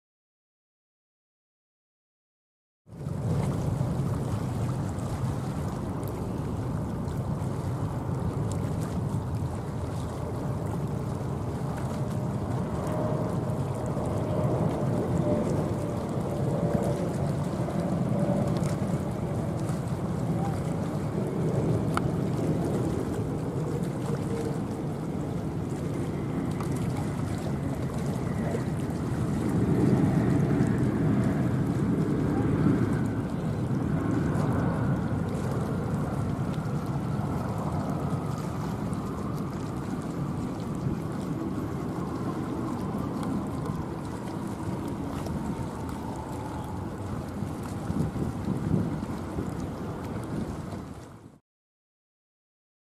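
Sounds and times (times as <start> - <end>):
wind noise on microphone: 2.9 - 51.4
distant jet engines rumbling: 3.0 - 50.7.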